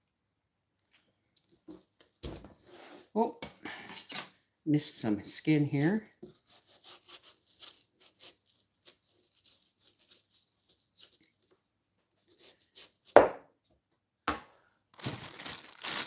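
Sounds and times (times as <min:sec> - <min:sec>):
knife cutting watermelon rind: 0:06.3 - 0:11.2.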